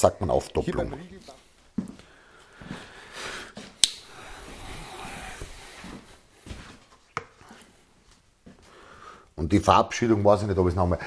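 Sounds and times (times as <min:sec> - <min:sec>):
footsteps on wooden floor: 0:01.2 - 0:03.8, 0:04.4 - 0:08.7
sharp click: 0:03.8 - 0:04.0.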